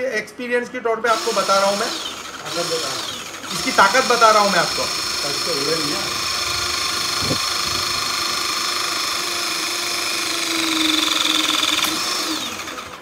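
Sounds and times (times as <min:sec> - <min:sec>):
crimping tool motor whining: 0:01.1 - 0:13.0
sharp click: 0:11.7 - 0:12.1.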